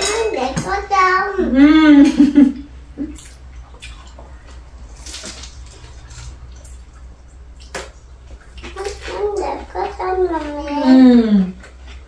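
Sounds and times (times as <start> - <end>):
low steady hum: 0.0 - 12.0
chewing: 3.1 - 12.0.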